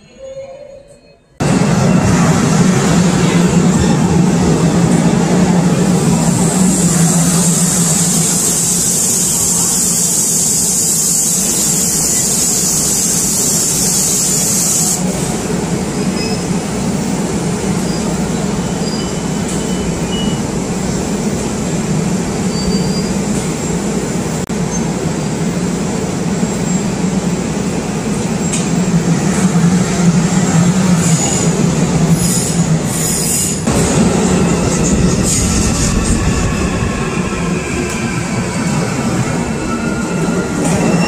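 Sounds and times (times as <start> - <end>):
train wheels rumbling on rail: 1.4 - 41.0.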